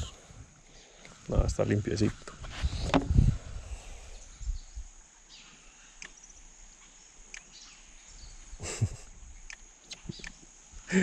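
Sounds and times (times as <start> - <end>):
insects chirring: 0.0 - 11.0
faint bird chirps: 3.8 - 10.5.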